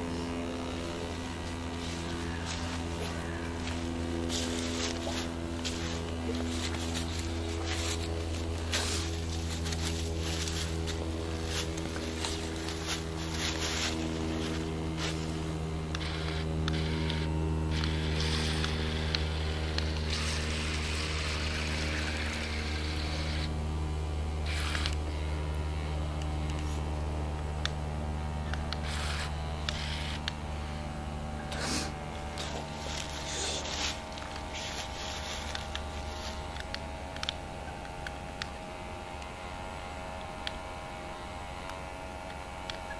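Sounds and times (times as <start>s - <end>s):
small electric motor humming: 0.0s - 42.9s.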